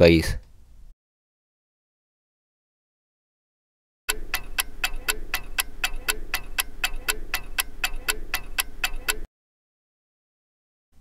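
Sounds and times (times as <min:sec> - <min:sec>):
clock ticking: 0:04.1 - 0:09.3.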